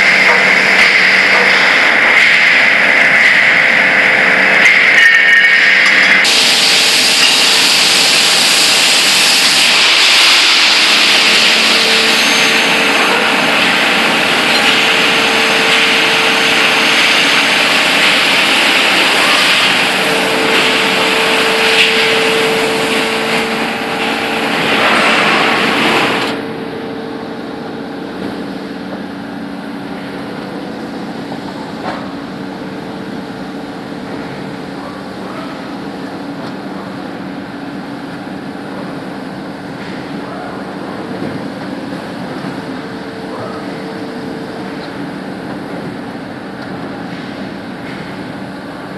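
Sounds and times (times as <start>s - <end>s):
loud machinery hiss: 0.0s - 38.4s
machinery hum: 0.0s - 48.9s.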